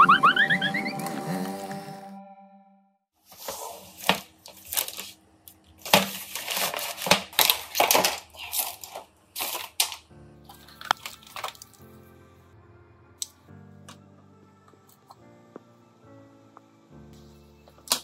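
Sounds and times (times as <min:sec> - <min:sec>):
plastic bag crinkling: 0:04.0 - 0:11.9
soft background music: 0:10.0 - 0:18.0.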